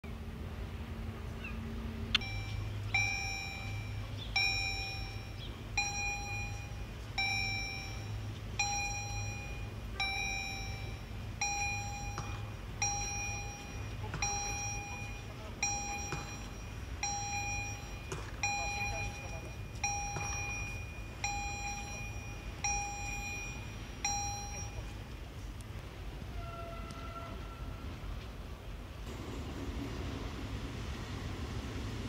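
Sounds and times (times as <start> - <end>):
level crossing warning bell dinging: 2.1 - 25.4.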